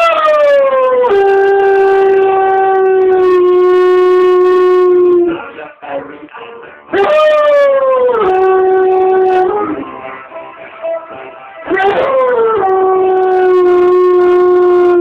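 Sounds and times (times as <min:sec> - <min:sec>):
dog howling: 0:00.0 - 0:05.4, 0:06.9 - 0:09.8, 0:11.7 - 0:15.0.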